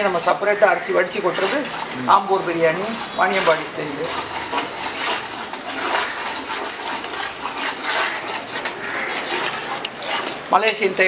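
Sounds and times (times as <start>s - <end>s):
metal utensils scraping a pot: 0.0s - 11.0s.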